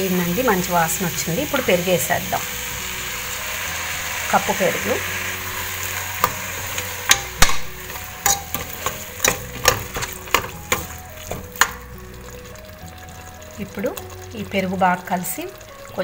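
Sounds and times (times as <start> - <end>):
frying hiss: 0.0 - 16.0
spoon clinking and scraping pot: 5.6 - 11.9.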